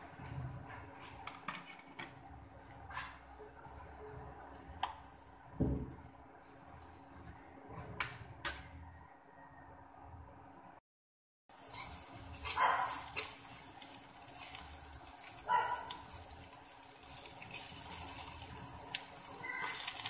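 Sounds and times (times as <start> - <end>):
metal spoon scraping wok: 11.6 - 20.0.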